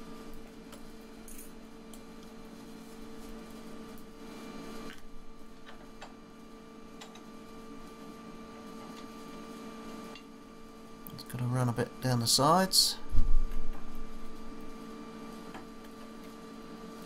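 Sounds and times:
electrical hum with hiss: 0:00.0 - 0:17.0.

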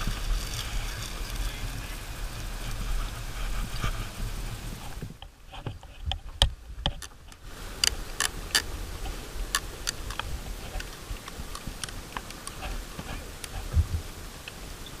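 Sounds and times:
fishing reel clicking: 0:00.0 - 0:01.8.

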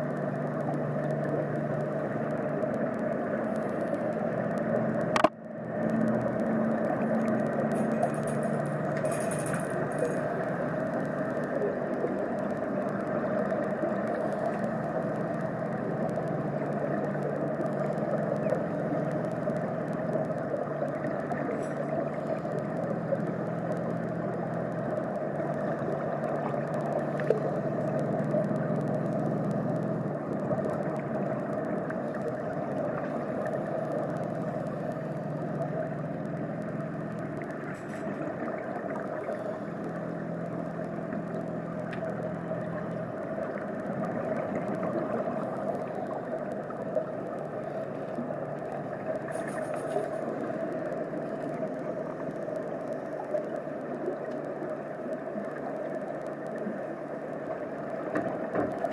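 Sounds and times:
low hum: 0:00.0 - 0:58.9
underwater rushing noise: 0:00.0 - 0:58.9.

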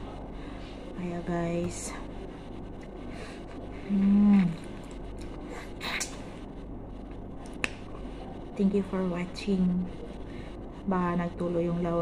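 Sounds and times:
closed-mouth hum: 0:00.0 - 0:12.0
sharp mouth click: 0:05.8 - 0:06.2.

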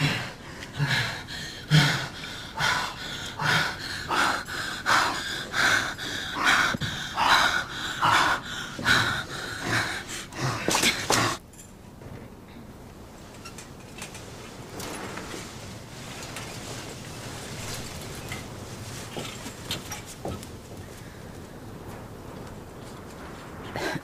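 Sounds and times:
heavy rhythmic breathing and gasps: 0:00.0 - 0:11.4, 0:23.6 - 0:24.0.

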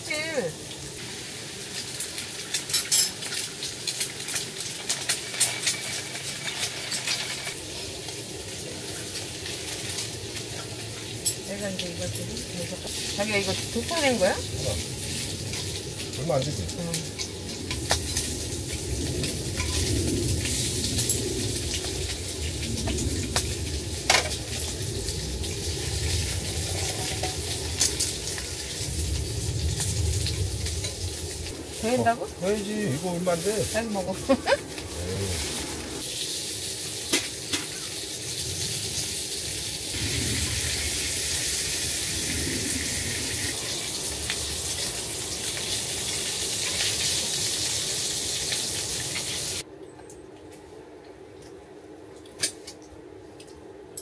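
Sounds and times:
eggs sizzling in a pan: 0:00.0 - 0:49.7
crackles and pops: 0:01.0 - 0:11.9, 0:14.6 - 0:32.0.

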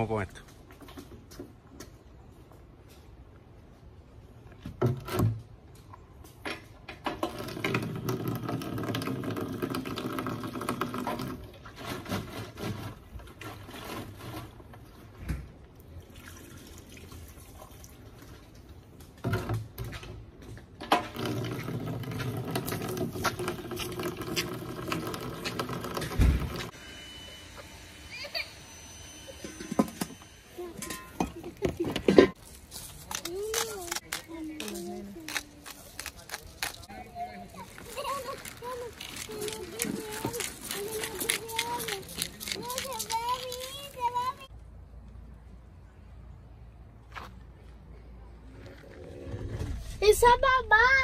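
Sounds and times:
water running into plastic jug: 0:07.4 - 0:11.5, 0:21.1 - 0:26.6.

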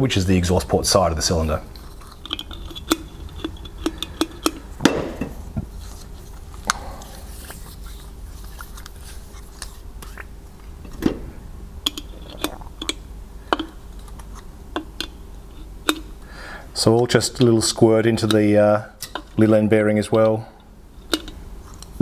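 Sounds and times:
low steady hum: 0:00.0 - 0:22.0
metal parts clicking and tapping: 0:01.8 - 0:04.6, 0:11.8 - 0:15.2, 0:21.0 - 0:22.0.

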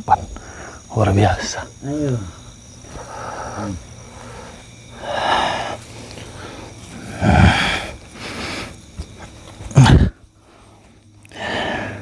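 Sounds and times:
man snorting and growling: 0:07.1 - 0:07.9.

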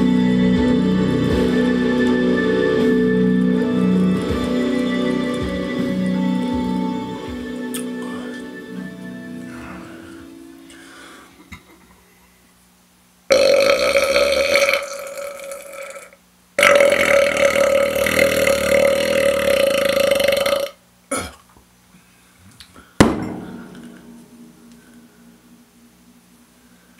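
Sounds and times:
man belching loudly: 0:13.3 - 0:21.4
sharp knock: 0:23.0 - 0:25.3.

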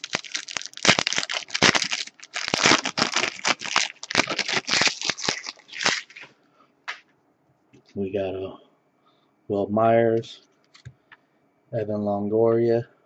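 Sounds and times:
wrapper crinkling and tearing: 0:00.0 - 0:06.3.

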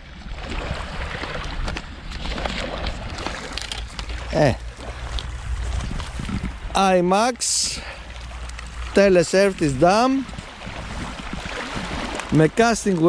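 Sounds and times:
wind rumble on microphone: 0:00.0 - 0:13.0
fishing rod clicks: 0:03.1 - 0:04.3
waves washing on pebble shore: 0:07.6 - 0:13.0.

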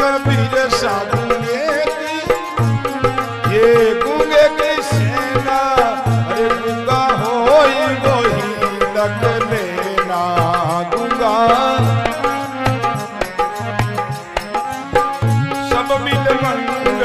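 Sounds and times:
tabla drum beat: 0:00.0 - 0:17.0
sliding pitch melody: 0:11.1 - 0:17.0.

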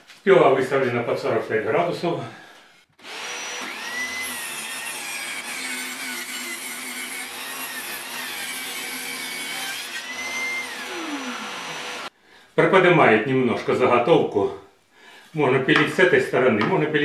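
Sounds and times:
table saw cutting wood: 0:03.0 - 0:12.1.

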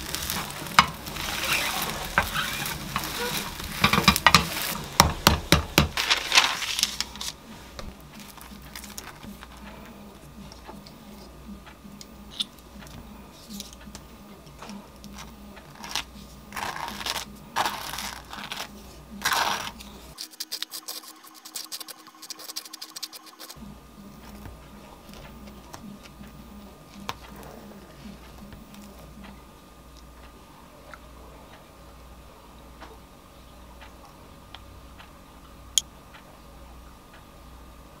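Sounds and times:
low steady hum: 0:00.0 - 0:38.0
knife scraping toast: 0:15.7 - 0:23.6.

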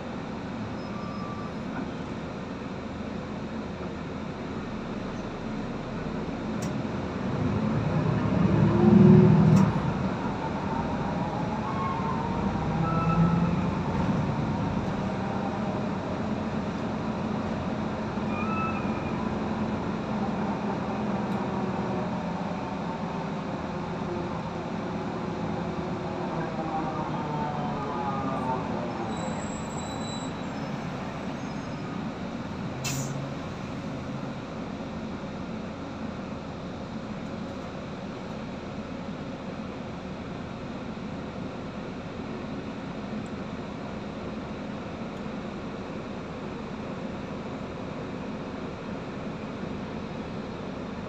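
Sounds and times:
bus engine drone: 0:00.0 - 0:51.0
sharp click or hiss: 0:32.8 - 0:33.2.

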